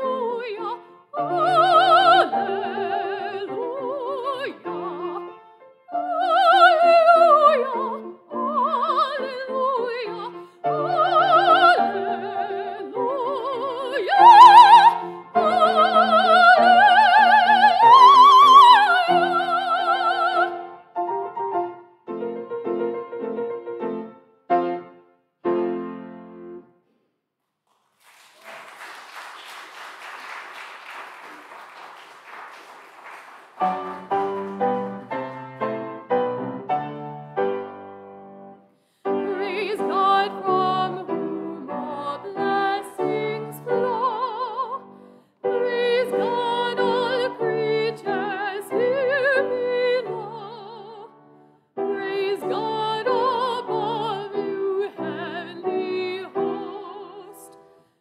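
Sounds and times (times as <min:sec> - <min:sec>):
soprano singing with vibrato: 0:00.0 - 0:20.7, 0:39.1 - 0:51.2, 0:51.8 - 0:57.6
piano chords: 0:00.0 - 0:26.7, 0:33.1 - 0:57.8.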